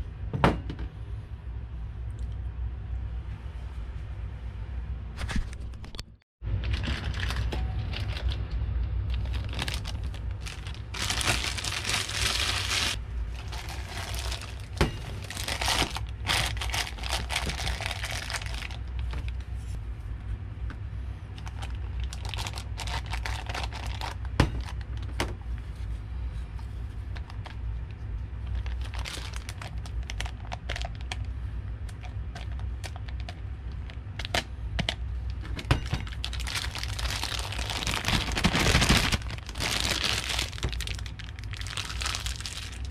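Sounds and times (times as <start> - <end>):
steady low hum: 0.0 - 42.9
plastic piping bag crinkling: 6.7 - 8.4, 9.1 - 19.4, 21.4 - 25.0, 28.4 - 31.3, 36.0 - 42.9.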